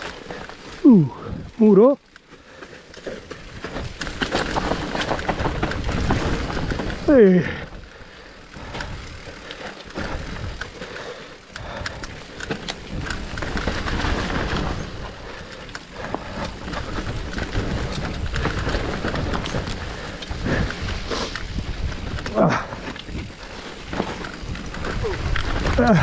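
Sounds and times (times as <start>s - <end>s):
bike chain and frame rattling: 0.0s - 26.0s
bike tyres rolling over stones: 0.0s - 26.0s
wind rumble on microphone: 16.0s - 26.0s.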